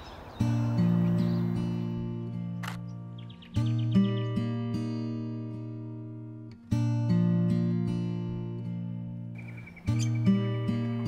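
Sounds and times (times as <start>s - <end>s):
acoustic guitar chords: 0.4s - 11.0s
bird calling high notes: 9.4s - 11.0s.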